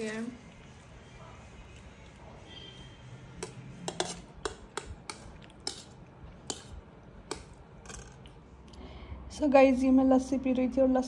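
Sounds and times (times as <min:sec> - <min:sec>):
metal spoon clinking on tableware: 0:03.4 - 0:08.3.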